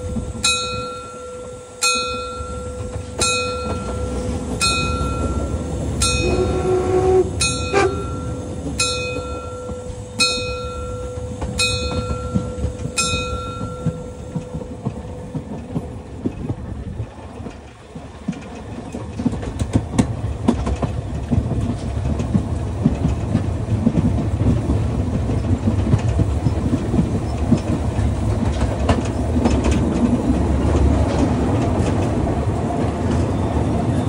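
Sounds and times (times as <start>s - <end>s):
steam train rumbling past: 0.0s - 34.0s
bell striking: 0.4s - 6.5s, 7.4s - 14.6s
train whistle: 5.4s - 8.6s.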